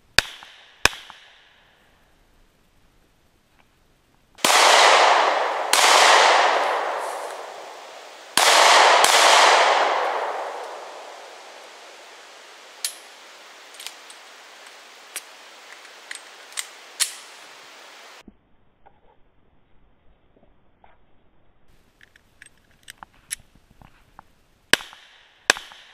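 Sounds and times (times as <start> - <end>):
pistol shots echoing: 4.4 - 13.1.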